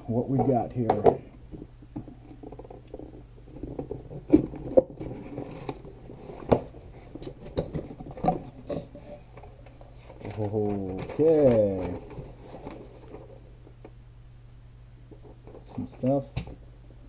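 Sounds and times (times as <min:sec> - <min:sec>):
cardboard box contents rustling: 0:04.2 - 0:08.6, 0:09.9 - 0:13.4.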